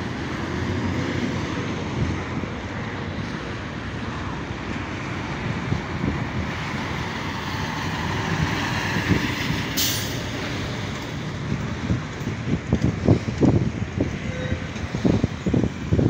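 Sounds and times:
air brake hiss: 0:09.8 - 0:10.3.

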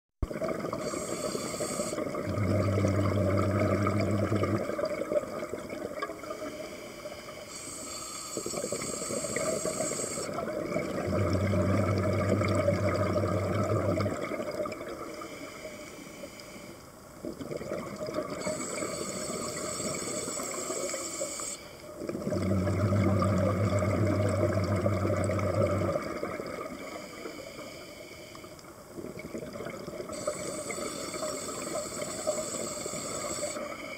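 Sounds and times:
underwater exhalation bubbling: 0:00.2 - 0:06.2, 0:08.4 - 0:15.0, 0:17.2 - 0:20.0, 0:22.0 - 0:26.8
regulator inhalation hiss: 0:00.8 - 0:02.1, 0:06.3 - 0:10.4, 0:15.1 - 0:16.9, 0:18.4 - 0:21.9, 0:26.8 - 0:28.6, 0:30.1 - 0:33.9.

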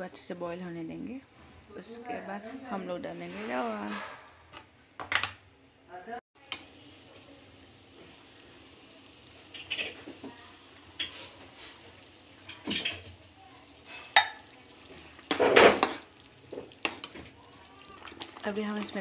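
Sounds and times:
boiling water: 0:06.4 - 0:19.0
light sizzle: 0:06.4 - 0:19.0
metal spatula scraping a pan: 0:11.0 - 0:13.1, 0:13.8 - 0:17.2.

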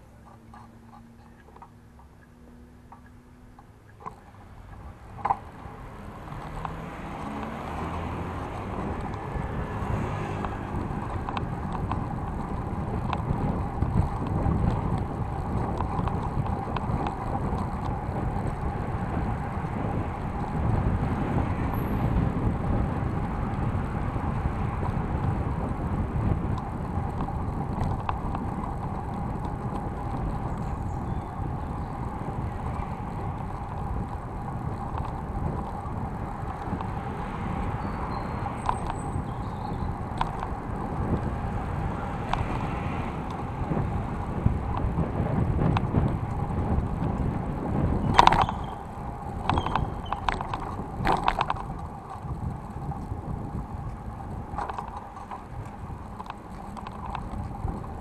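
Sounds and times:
bike tyre rumble: 0:00.0 - 0:58.0
wind buffeting microphone: 0:02.9 - 0:58.0.

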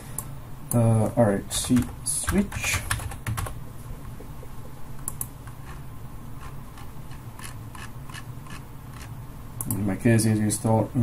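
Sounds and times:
low steady hum: 0:00.0 - 0:11.0
computer keyboard keystrokes: 0:01.6 - 0:03.6.

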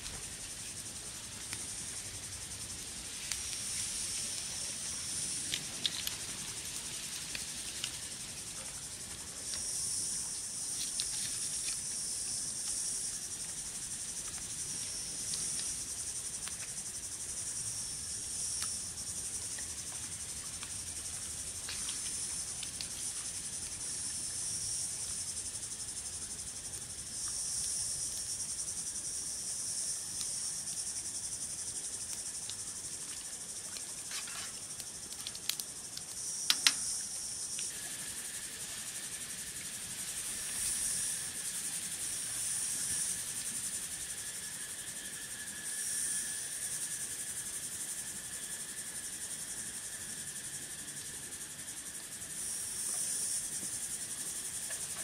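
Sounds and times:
insects chirring: 0:00.0 - 0:55.0
sharp clicks: 0:36.5 - 0:36.8.

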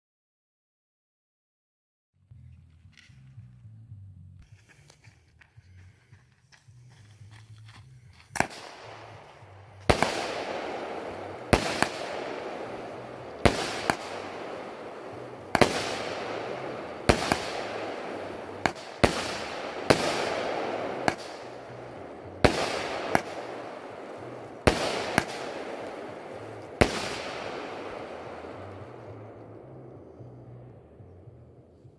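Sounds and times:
firework hiss and crackle: 0:08.4 - 0:29.2
firework bangs: 0:08.4 - 0:29.5.

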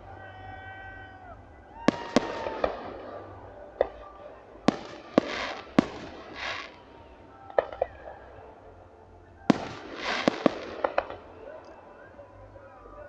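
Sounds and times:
fireworks bangs: 0:00.1 - 0:08.6, 0:09.4 - 0:11.9
fireworks crackling hiss: 0:01.9 - 0:08.3, 0:09.5 - 0:11.6.

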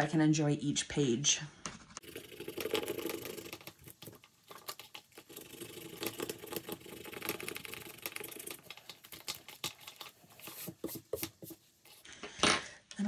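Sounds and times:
dry scratching on paper: 0:05.4 - 0:12.1.

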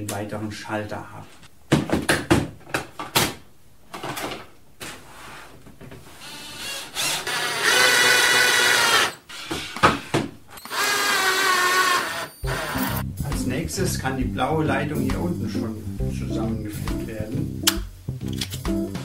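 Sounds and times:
drill motor whine: 0:06.3 - 0:09.8, 0:10.6 - 0:13.0.

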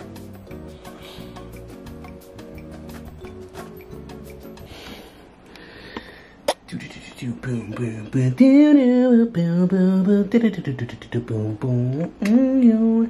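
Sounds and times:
man singing wordless melody: 0:06.7 - 0:13.0.

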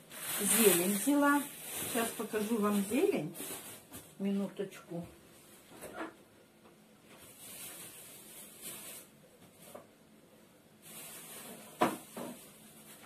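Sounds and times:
plastic bag rustling: 0:00.0 - 0:04.4, 0:07.0 - 0:10.0, 0:10.8 - 0:13.0.

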